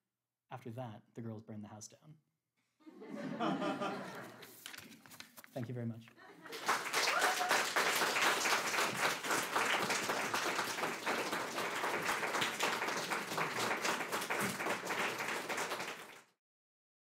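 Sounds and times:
audience applauding: 6.3 - 16.4.

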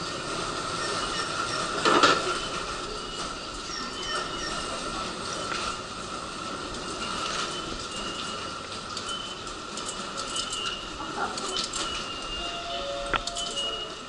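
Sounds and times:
crowd footsteps and bustle: 0.0 - 14.0
ticket gate electronic beeps: 0.8 - 2.8, 3.7 - 4.8, 7.0 - 14.0.

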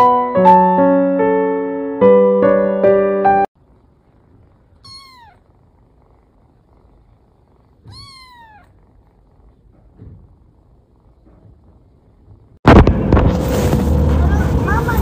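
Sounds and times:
piano music: 0.0 - 3.5
cat meowing: 4.7 - 5.6, 7.7 - 8.9.

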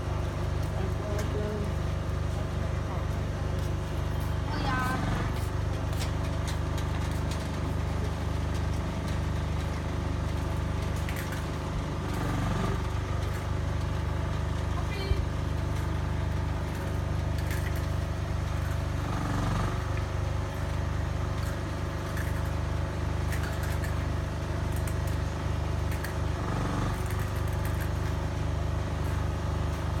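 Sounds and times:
engine humming: 0.0 - 30.0.

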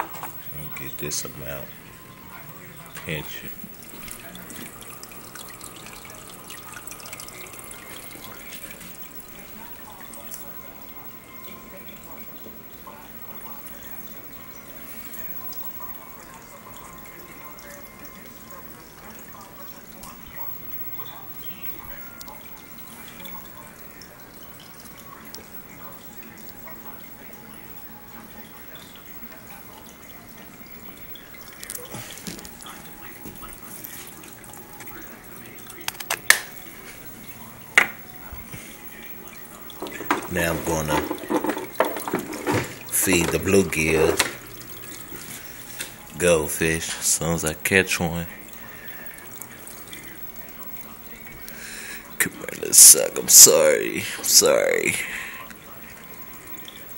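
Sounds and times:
aquarium water trickling: 0.0 - 56.9
handling clicks and knocks: 40.9 - 43.5.

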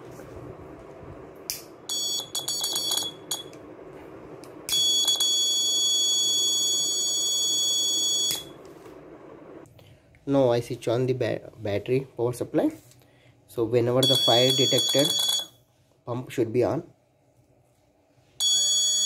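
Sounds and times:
piezo buzzer beeping: 1.9 - 3.5, 4.7 - 8.5, 14.0 - 15.5, 18.4 - 19.0.

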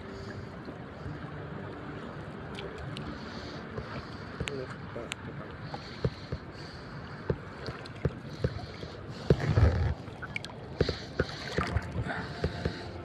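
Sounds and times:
seawater sloshing around legs: 5.7 - 13.0.

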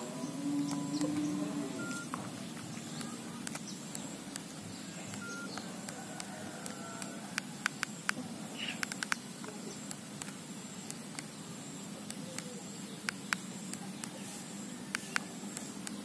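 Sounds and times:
steady background hiss: 0.0 - 16.0
short faint beeps: 0.7 - 1.1, 1.8 - 2.2, 5.2 - 5.6
phone key clicks: 8.8 - 9.2.

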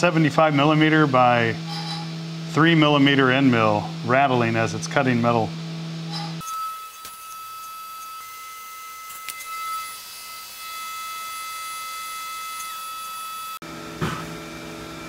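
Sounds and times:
low machine hum: 0.0 - 6.4
milling spindle high-pitched whine: 0.0 - 13.6.

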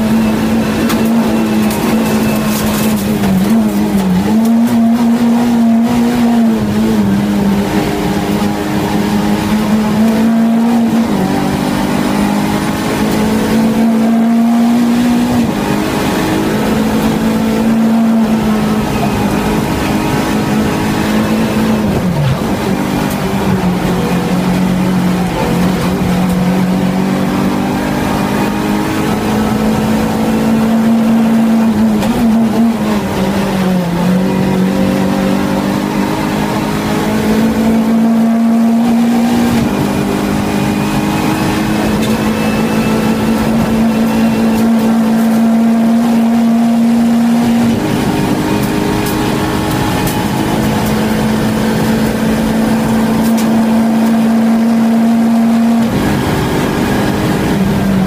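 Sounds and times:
race car engine at high revs: 0.0 - 58.0.

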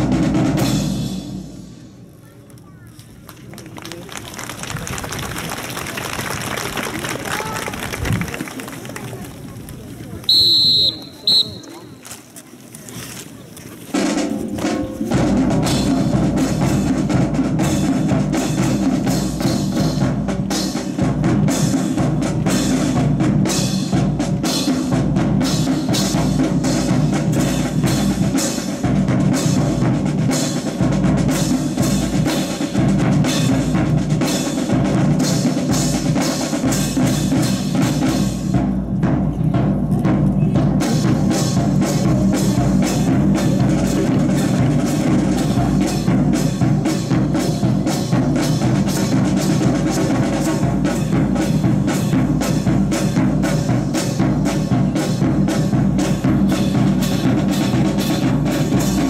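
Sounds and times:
drum-led marching music: 0.0 - 2.1, 3.0 - 59.0.

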